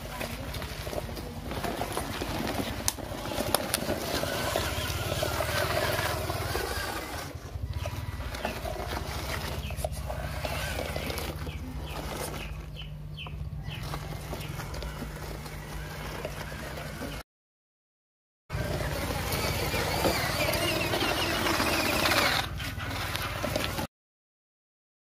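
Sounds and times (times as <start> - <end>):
tyres crunching over gravel: 0.0 - 17.2, 18.5 - 23.9
small electric motor running: 2.4 - 12.7, 18.5 - 23.8.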